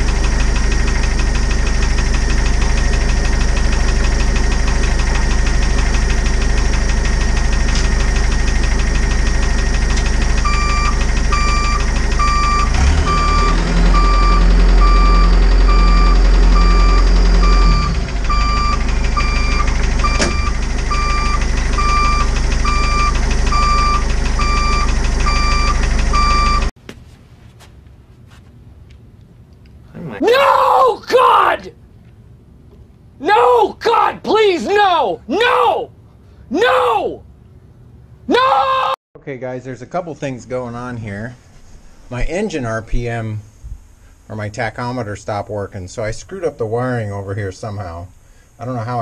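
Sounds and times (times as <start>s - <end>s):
engine revving with whine: 0.0s - 26.7s
diesel engine running: 0.0s - 26.8s, 40.3s - 49.0s
electronic warning beep: 10.4s - 26.7s.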